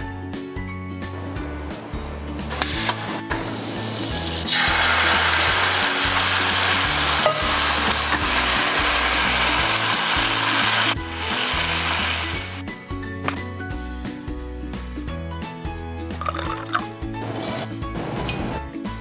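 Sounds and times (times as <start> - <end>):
batter sizzling in frying pan: 2.7 - 12.6.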